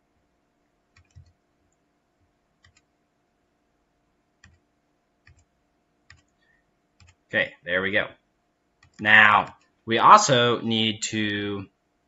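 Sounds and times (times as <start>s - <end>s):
computer mouse clicks: 0.9s - 1.4s, 2.6s - 2.9s, 4.4s - 4.6s, 5.2s - 5.5s, 6.1s - 6.4s, 7.0s - 7.2s, 8.8s - 9.7s.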